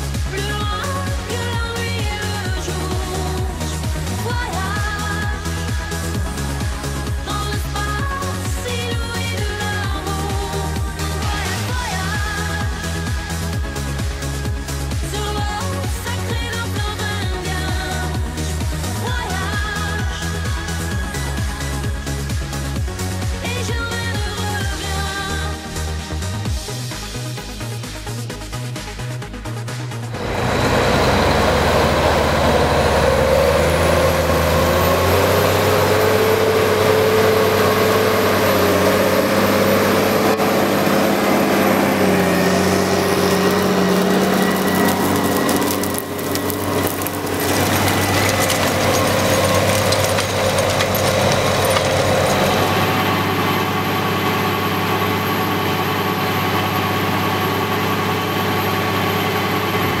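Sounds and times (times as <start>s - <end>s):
tractor diesel engine under load: 0.0s - 28.6s, 29.8s - 60.0s
high whine: 30.1s - 57.7s.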